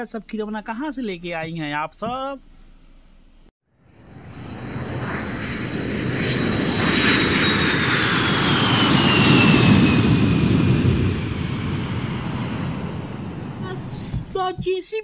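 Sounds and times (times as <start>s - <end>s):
high engine whine: 2.5s - 14.3s
jet aircraft flyby: 3.8s - 14.3s.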